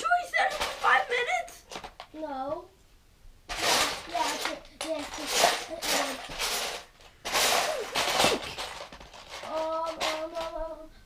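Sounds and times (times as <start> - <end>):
plastic bricks clattering in bin: 0.3 - 2.1, 3.5 - 10.6.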